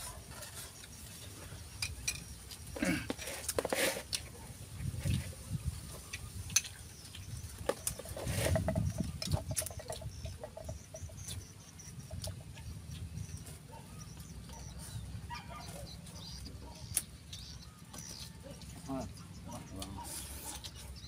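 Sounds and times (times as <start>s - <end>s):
chopsticks clicking against bowls: 6.1s - 8.0s.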